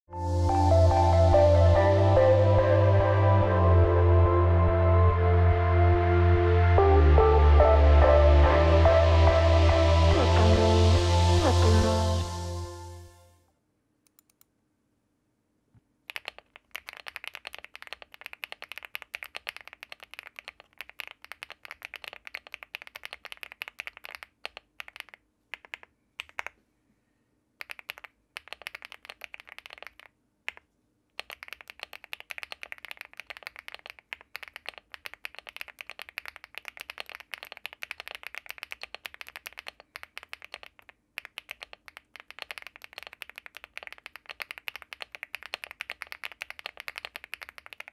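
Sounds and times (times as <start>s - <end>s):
mechanical keyboard typing: 16.1s - 26.6s, 27.6s - 30.6s, 31.2s - 47.9s.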